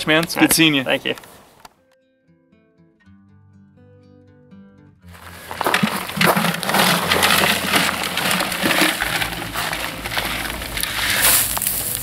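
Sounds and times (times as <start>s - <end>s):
crawfish clattering in plastic: 5.1s - 12.0s.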